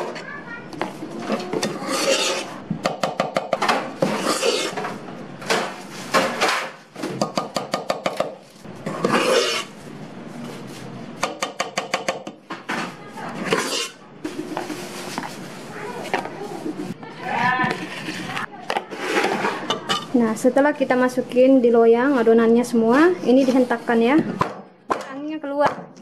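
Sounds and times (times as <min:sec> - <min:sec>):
spoon scraping metal bowl: 0:01.2 - 0:02.6, 0:04.0 - 0:04.9, 0:08.8 - 0:09.8, 0:13.4 - 0:15.3, 0:17.6 - 0:20.1.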